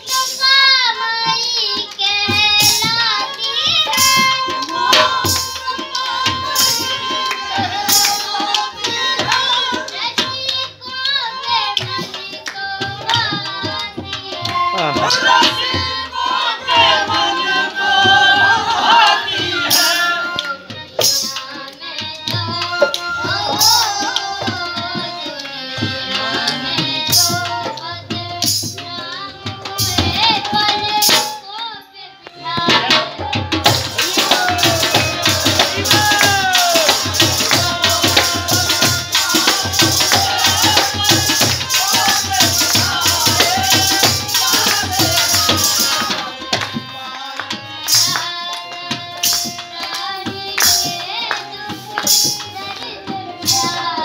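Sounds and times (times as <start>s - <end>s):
harmonium: 0.0s - 54.0s
woman singing through a microphone: 0.0s - 54.0s
hand drum beating: 32.5s - 46.8s.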